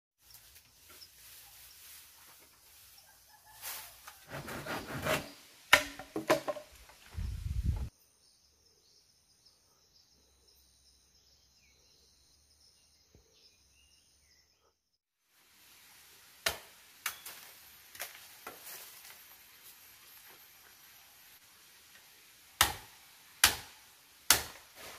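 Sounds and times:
bamboo stalks knocking and cracking: 5.7s - 7.0s, 16.4s - 19.2s, 21.9s - 24.9s.

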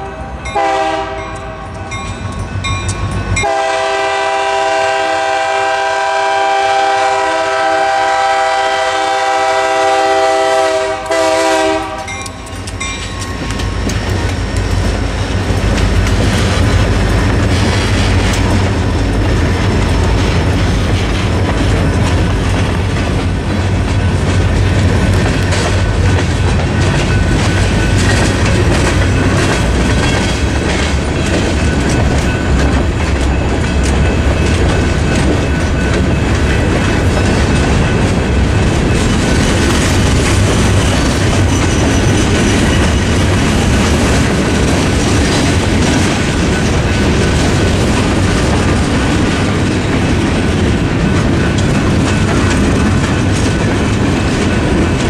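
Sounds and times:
locomotive air horn: 0.0s - 1.7s, 3.4s - 12.2s.

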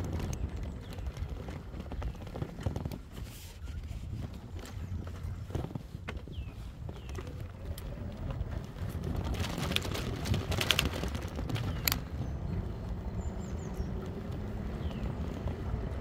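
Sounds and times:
bike tyre rumble: 0.0s - 16.0s
wind: 0.0s - 16.0s.

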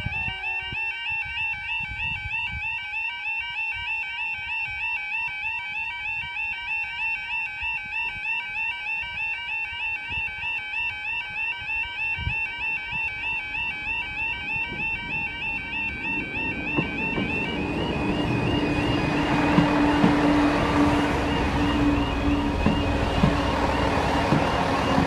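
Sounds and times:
level crossing warbling alarm: 10.4s - 25.0s.

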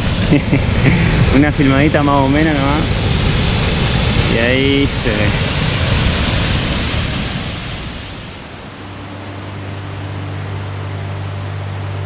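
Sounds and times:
waterfall and river rushing: 0.0s - 12.0s
sustained low musical notes: 8.4s - 12.0s.

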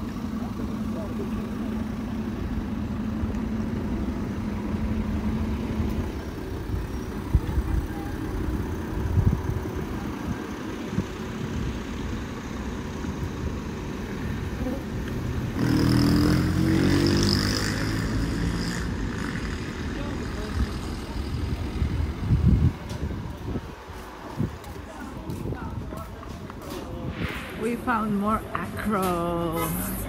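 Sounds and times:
motor vehicle passing close: 14.6s - 23.6s, 26.7s - 30.0s
low rumble: 26.8s - 29.0s.

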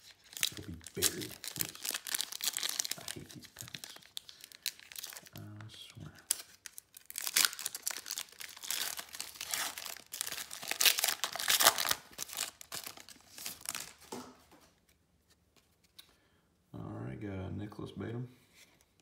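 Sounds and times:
foil wrapper crinkling and tearing: 0.0s - 5.4s, 6.1s - 14.2s.

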